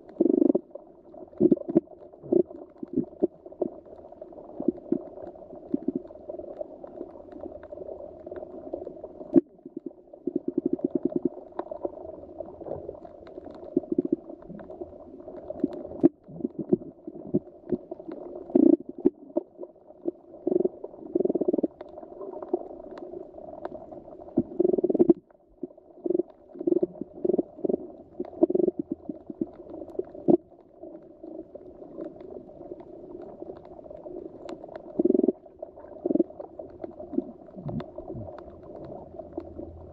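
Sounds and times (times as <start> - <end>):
underwater bubbling and gurgling: 0.0 - 39.9
low steady water wash: 21.6 - 39.9.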